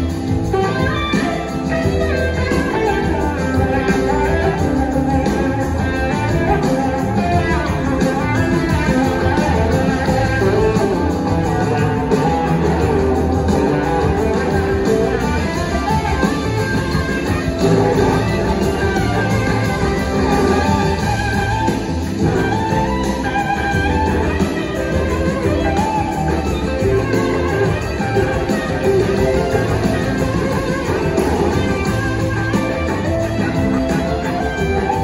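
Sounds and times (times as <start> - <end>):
electric guitars: 0.0 - 35.0
live blues-rock band playing: 0.0 - 35.0.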